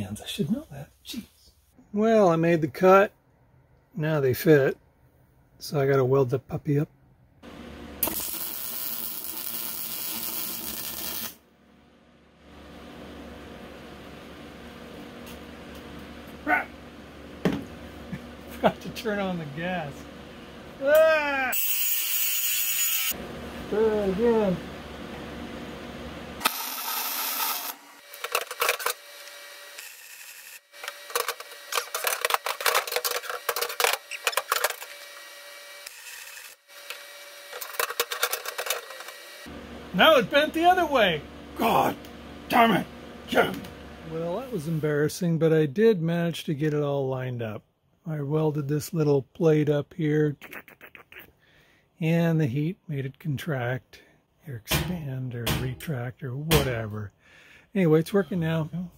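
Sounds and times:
welding arc crackling: 7.5s - 11.4s.

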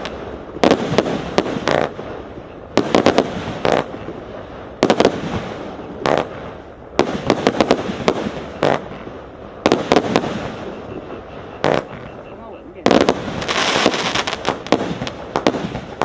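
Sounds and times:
firework bangs: 0.0s - 16.0s
firework hiss: 12.8s - 16.0s.

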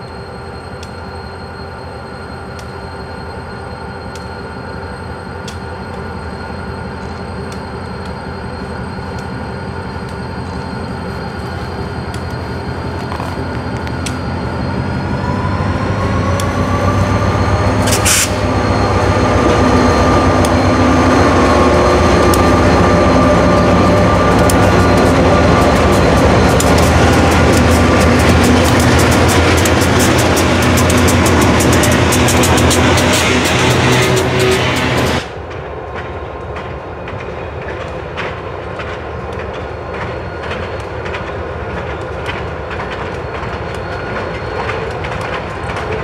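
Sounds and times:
diesel locomotives passing: 0.0s - 46.0s
rising whine: 7.0s - 35.4s.

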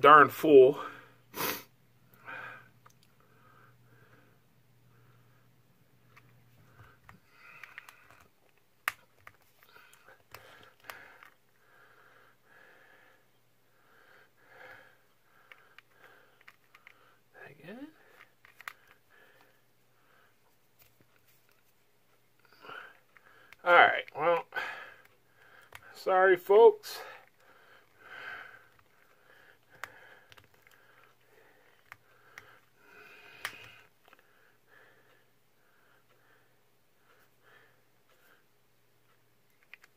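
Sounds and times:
person sniffing and breathing: 1.1s - 1.7s
faint nose breathing: 27.0s - 38.5s.

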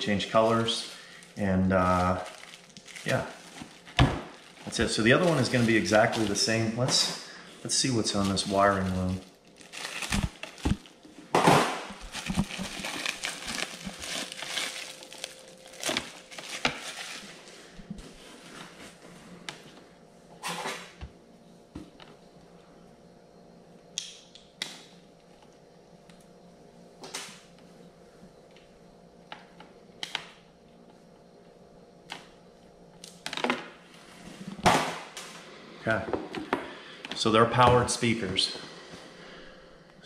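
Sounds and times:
plastic bag crinkling: 0.0s - 7.0s, 7.7s - 11.1s, 11.9s - 17.5s.

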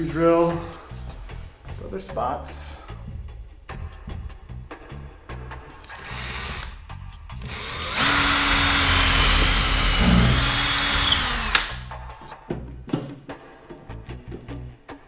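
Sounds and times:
power drill motor: 5.9s - 6.8s, 7.4s - 11.8s.

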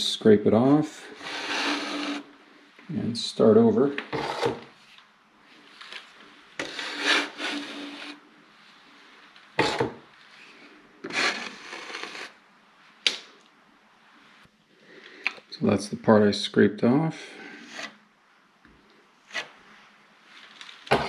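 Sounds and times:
drywall blade scraping wall: 1.1s - 2.3s, 4.1s - 4.8s, 6.6s - 8.3s, 9.6s - 10.0s, 11.0s - 12.4s, 17.4s - 18.0s.

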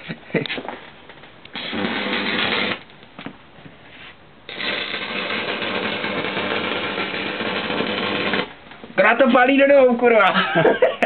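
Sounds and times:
welding arc crackling and sizzling: 1.4s - 3.1s, 4.5s - 9.8s.

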